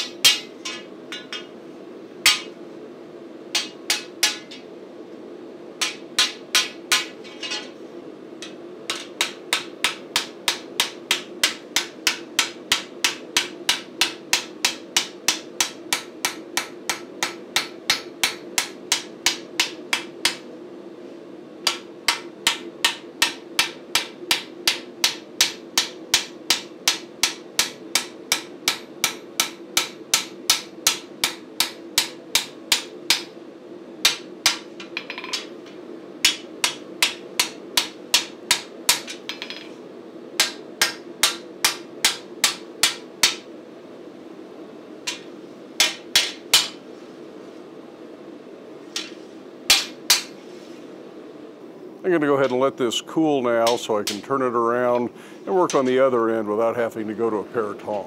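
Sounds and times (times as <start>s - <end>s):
hammer striking steel on anvil: 0.0s - 1.6s, 2.2s - 2.6s, 3.6s - 4.7s, 5.8s - 7.8s, 8.4s - 20.4s, 21.6s - 33.3s, 34.0s - 39.7s, 40.4s - 43.4s, 45.1s - 46.8s, 49.0s - 50.4s.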